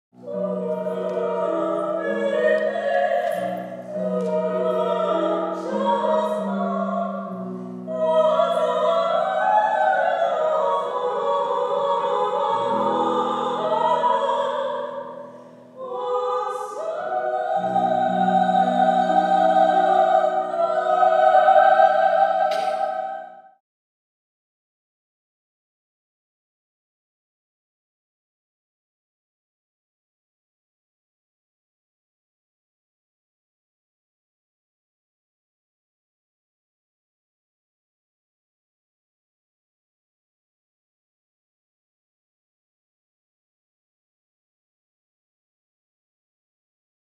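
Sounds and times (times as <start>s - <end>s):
lower sustained vocal part: 0.2s - 23.6s.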